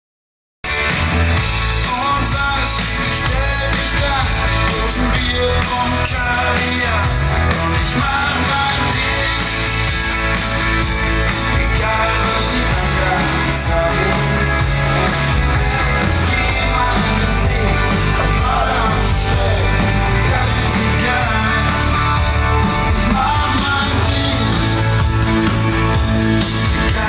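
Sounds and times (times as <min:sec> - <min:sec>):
live rock music over pa: 0:00.6 - 0:27.0.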